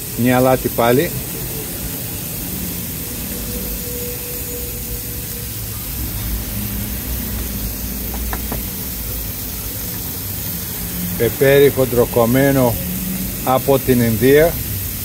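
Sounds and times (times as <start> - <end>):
steak sizzling on a grill: 0.0 - 15.0
low rumble: 3.1 - 11.0.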